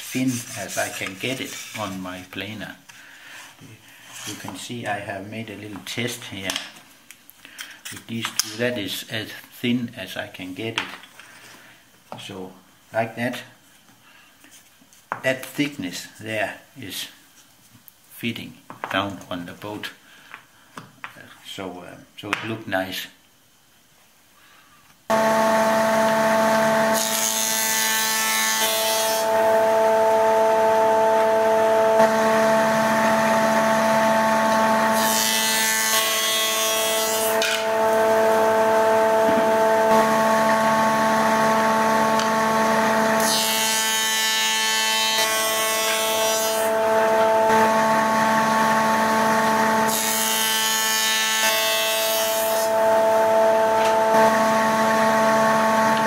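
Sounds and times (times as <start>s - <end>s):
planer humming: 25.1s - 44.0s, 45.9s - 50.3s, 52.6s - 56.0s
high-pitched cutter noise: 25.1s - 56.0s.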